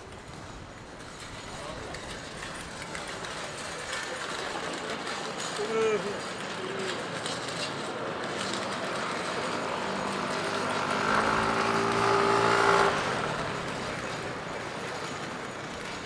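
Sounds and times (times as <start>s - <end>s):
busy street hubbub with voices: 0.0s - 16.0s
vehicle engine passing by: 8.4s - 15.2s.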